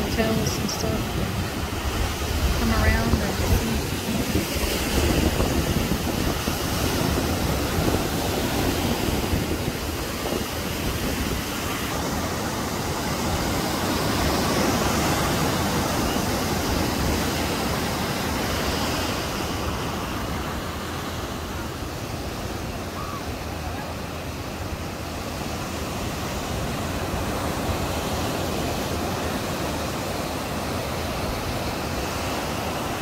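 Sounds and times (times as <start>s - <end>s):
sea surf breaking: 0.0s - 33.0s.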